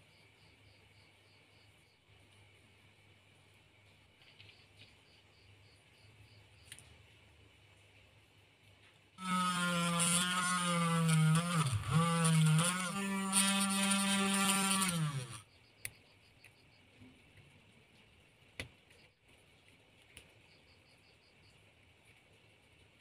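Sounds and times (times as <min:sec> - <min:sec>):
mini rotary drill whirring: 0:09.2 - 0:15.4.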